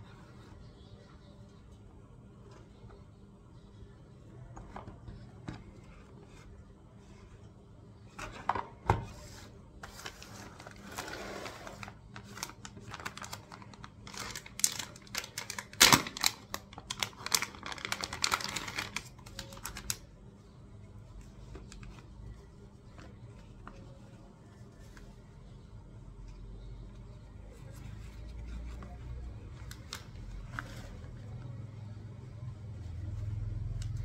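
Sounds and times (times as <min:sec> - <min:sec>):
plastic bags crinkling: 0:10.1 - 0:20.0.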